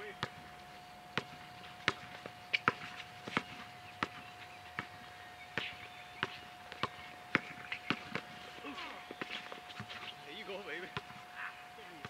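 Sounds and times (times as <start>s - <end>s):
basketball bouncing on court: 0.0s - 0.5s, 1.2s - 8.4s, 10.8s - 11.2s.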